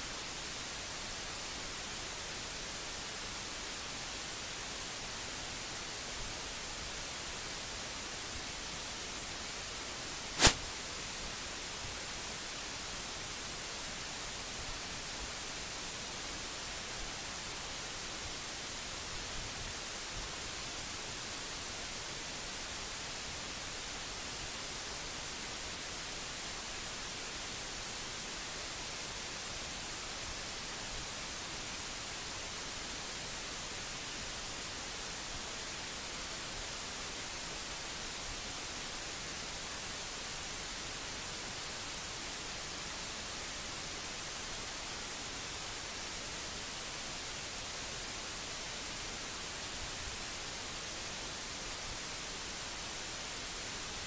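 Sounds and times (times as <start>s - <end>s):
microphone hiss: 0.0s - 54.0s
sharp click: 10.4s - 10.6s.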